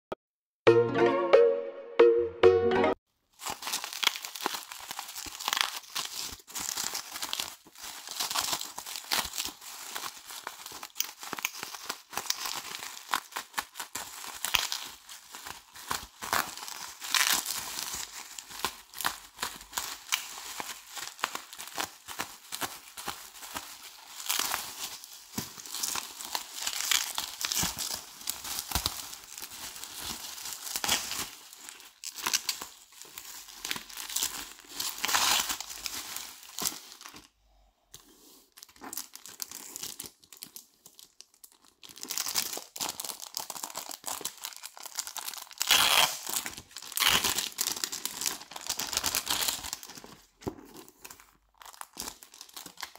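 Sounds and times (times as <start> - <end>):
plastic packaging crinkling and tearing: 3.2 - 37.4, 38.0 - 52.9.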